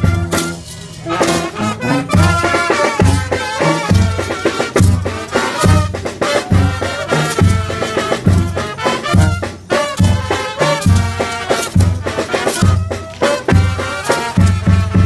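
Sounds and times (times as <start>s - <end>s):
brass band playing dance music: 0.0s - 15.0s.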